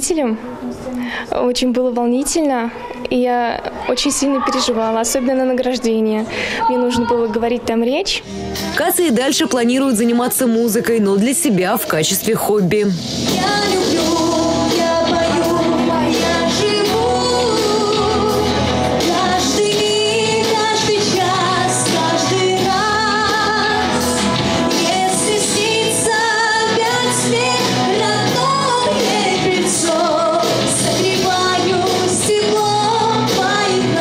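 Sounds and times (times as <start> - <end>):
woman singing into microphone: 8.6 - 34.0
instrumental accompaniment: 12.6 - 34.0.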